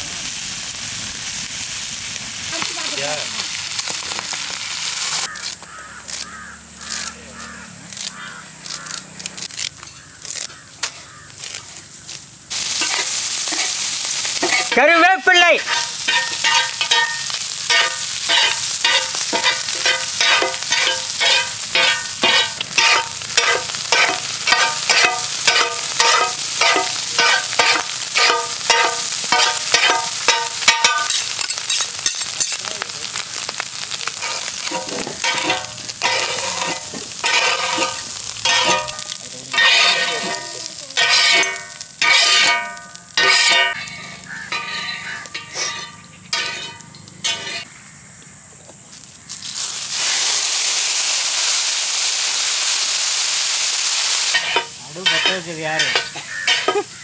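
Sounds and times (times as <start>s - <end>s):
frying oil sizzling: 0.0s - 47.8s, 48.8s - 57.0s
metal ladles scraping an iron pan: 12.5s - 33.2s, 34.1s - 47.7s, 54.3s - 57.0s.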